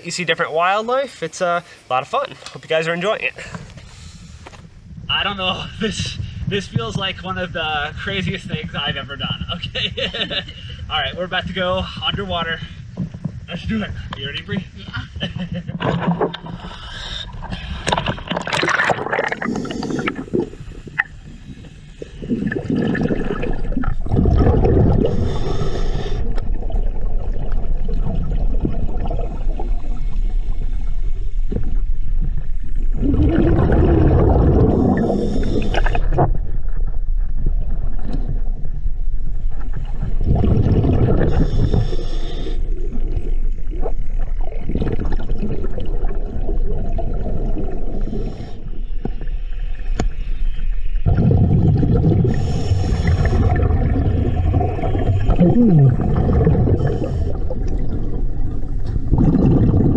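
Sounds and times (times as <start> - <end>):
regulator inhale hiss: 3.4 - 4.8, 19.4 - 22.2, 25.0 - 26.5, 34.8 - 36.2, 41.2 - 42.8, 48.0 - 50.5, 52.3 - 53.7, 56.8 - 57.6
rush of exhaled bubbles: 15.8 - 38.7, 39.5 - 49.3, 51.0 - 59.9.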